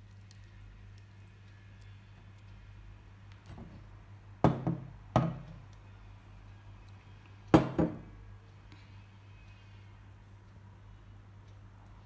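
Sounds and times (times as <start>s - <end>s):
knocks on wooden tabletop: 4.4s - 5.4s, 7.6s - 8.0s.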